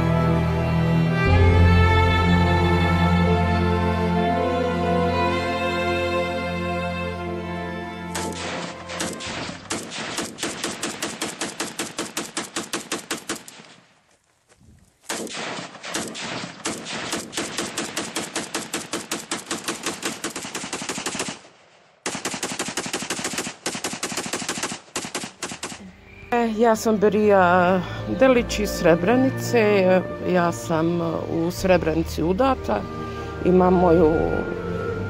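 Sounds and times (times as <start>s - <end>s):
machine-gun fire: 8.2s - 13.8s, 15.1s - 25.8s.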